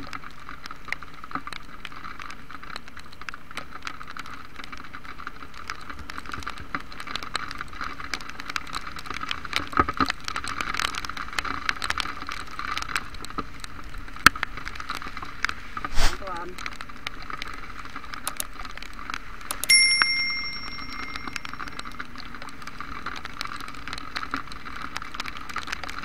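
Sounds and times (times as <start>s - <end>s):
raindrops ticking on camera: 0.0s - 26.0s
heavy rain hiss: 15.5s - 18.5s.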